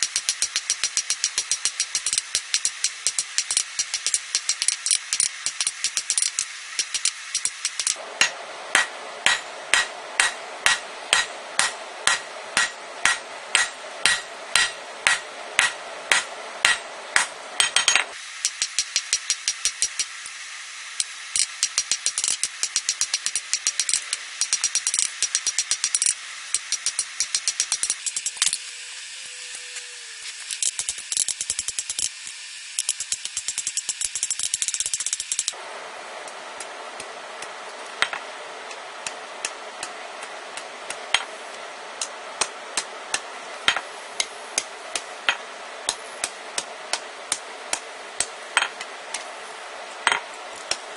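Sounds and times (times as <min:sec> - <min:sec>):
hammer striking metal on anvil: 0:05.6 - 0:20.1.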